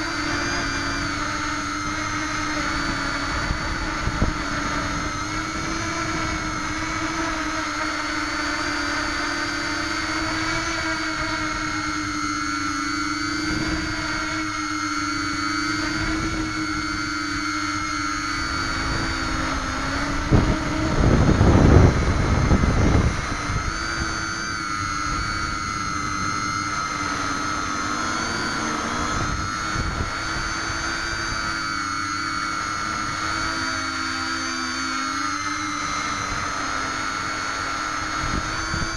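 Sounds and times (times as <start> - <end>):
drone motors whining: 0.0 - 38.9
low rumbling rush: 13.2 - 34.7.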